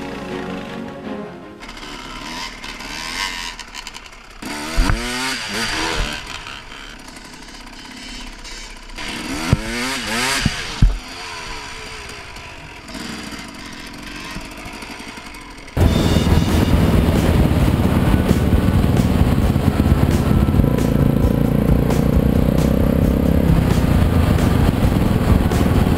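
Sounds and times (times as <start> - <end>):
dirt bike engine revving: 0.0 - 25.9
steady rushing noise: 15.2 - 25.9.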